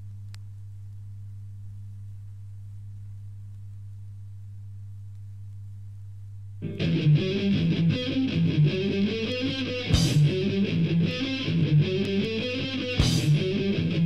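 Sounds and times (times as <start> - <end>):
low electrical hum: 0.0 - 14.0
thrash metal song: 6.6 - 14.0.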